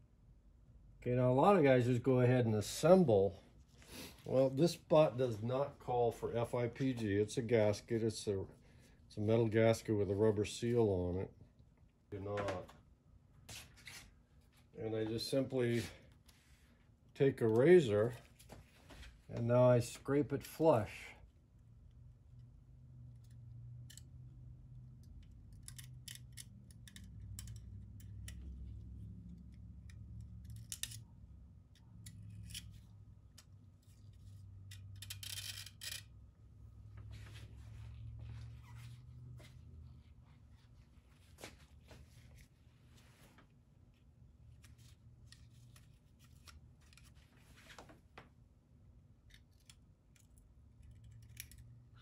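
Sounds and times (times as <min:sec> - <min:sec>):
low steady hum: 0:00.0 - 0:52.0
razor blade scraping: 0:32.0 - 0:32.9.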